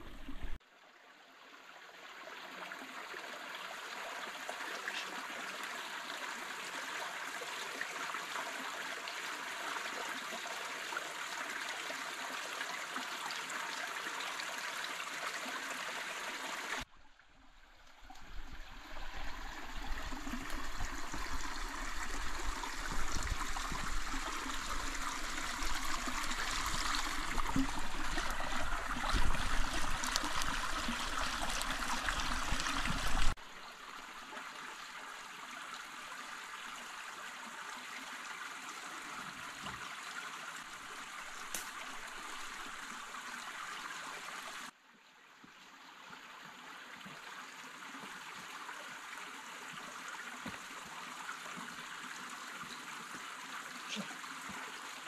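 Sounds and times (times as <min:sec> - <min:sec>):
stream trickling over rocks: 0:00.0 - 0:55.0
campfire crackles: 0:17.8 - 0:33.4, 0:41.2 - 0:42.8.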